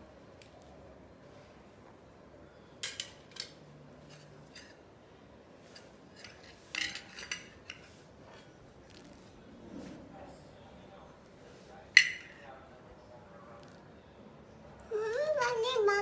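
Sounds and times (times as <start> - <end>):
metal kitchenware clinking: 2.8 - 4.8, 5.7 - 7.9, 12.0 - 12.5.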